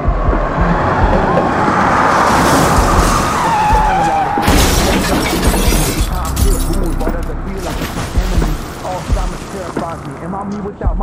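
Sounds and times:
car tyres screeching: 0.0 - 6.0
car crash: 0.4 - 10.4.

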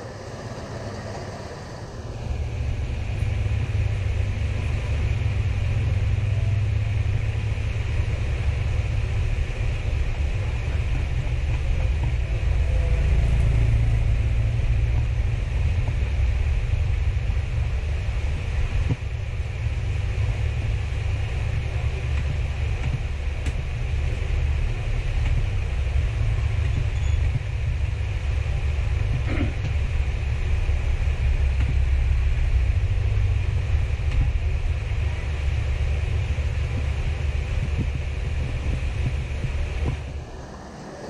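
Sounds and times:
low rumble: 0.0 - 41.0
faint clicks and taps: 22.1 - 23.7.

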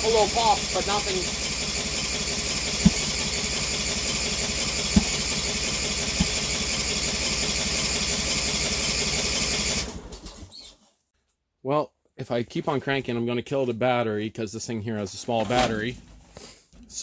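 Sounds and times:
electric starter cranking engine: 0.0 - 10.6
engine pops: 0.2 - 7.0.

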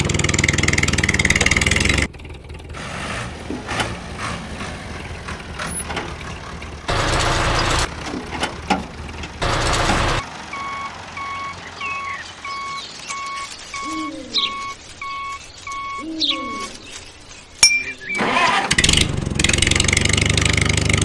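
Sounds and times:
truck-like noise bursts: 0.0 - 16.6
reversing alarm beeping: 9.5 - 16.7.

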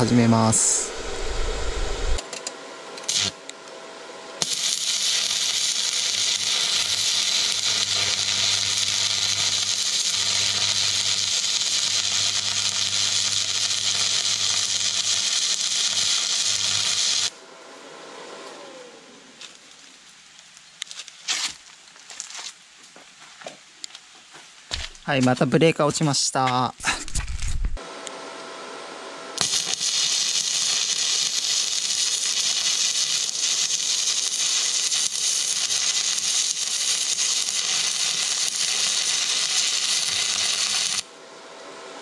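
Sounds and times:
low hum: 0.0 - 2.2
arc welder crackling and hissing: 0.0 - 3.8, 4.4 - 22.3, 29.2 - 41.7
falling whine: 0.0 - 20.4.

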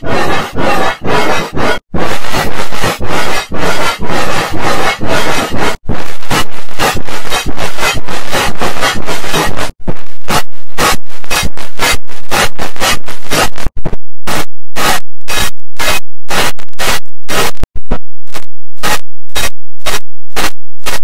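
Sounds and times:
distorted digital noise bursts: 0.1 - 17.6, 18.3 - 21.0.

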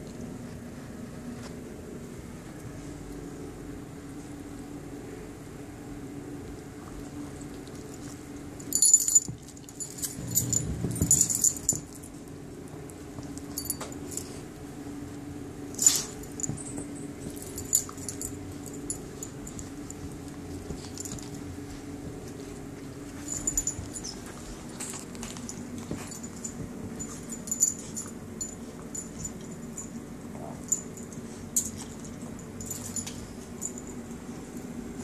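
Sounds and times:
steady low hum: 0.0 - 35.0
dogs playing: 6.3 - 35.0
chain collar jangling: 8.6 - 12.1, 13.5 - 14.3, 15.8 - 21.4, 23.1 - 30.0, 30.6 - 34.0
dog low rumble: 9.8 - 14.6, 30.2 - 31.0.

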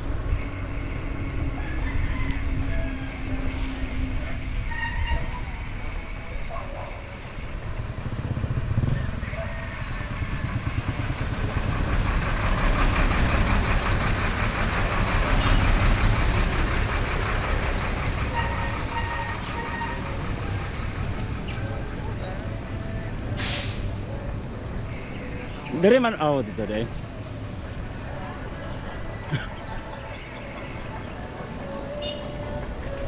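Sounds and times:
truck passing close: 7.0 - 33.0
wind rumbling on microphone: 7.3 - 13.7.

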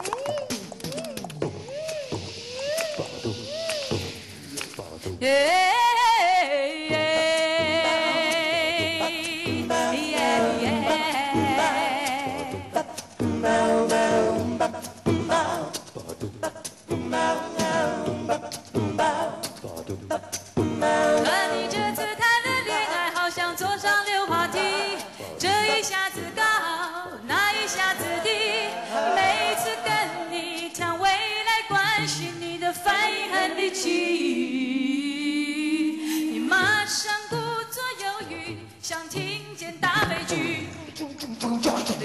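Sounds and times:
backing singers: 0.0 - 37.5, 38.2 - 41.5
woman singing lead: 5.2 - 15.8, 20.1 - 41.0.

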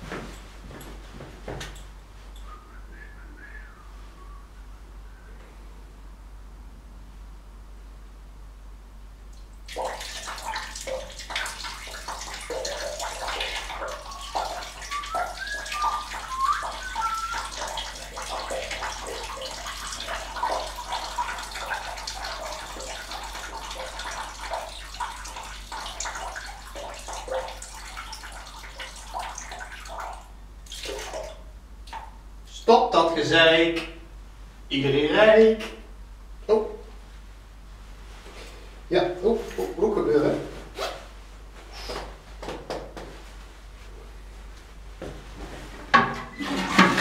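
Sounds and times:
urine splashing into toilet water: 9.3 - 32.2, 46.0 - 47.0.

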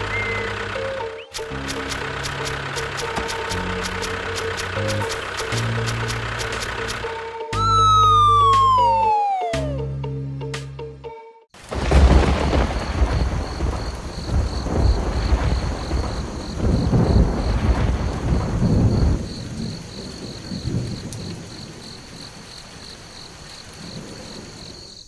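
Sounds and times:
high fast pulsing chirp: 0.0 - 5.7
steady rain: 1.4 - 7.0, 11.6 - 25.0
thunder rumbling: 11.6 - 25.0.

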